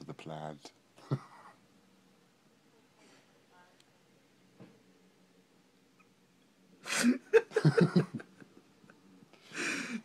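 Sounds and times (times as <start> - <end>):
person laughing: 6.9 - 8.6.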